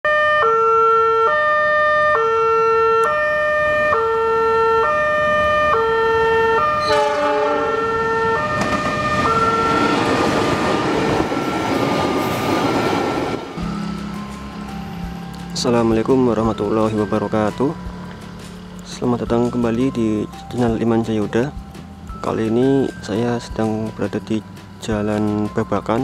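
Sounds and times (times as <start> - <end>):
two-tone crossing warning alarm: 0.0 - 20.8
freight train rumbling past: 3.4 - 26.0.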